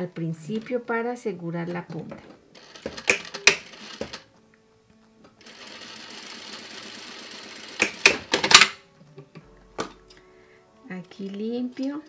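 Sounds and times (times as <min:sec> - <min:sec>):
loud clicks and knocks: 0:02.2 - 0:04.2, 0:07.8 - 0:08.8
sewing machine stitching: 0:02.6 - 0:04.3, 0:05.4 - 0:08.8.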